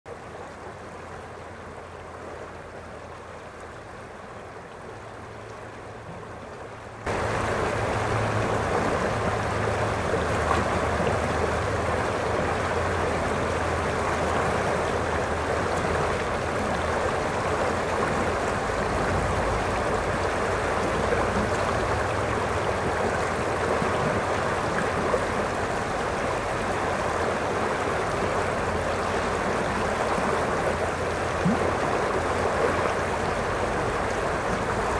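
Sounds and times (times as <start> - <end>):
river rushing over rocks: 0.2 - 34.9.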